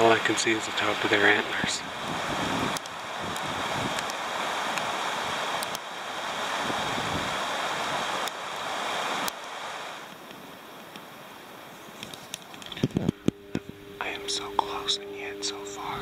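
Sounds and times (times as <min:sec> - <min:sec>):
gusty wind on microphone: 0:01.5 - 0:10.6, 0:11.9 - 0:13.9.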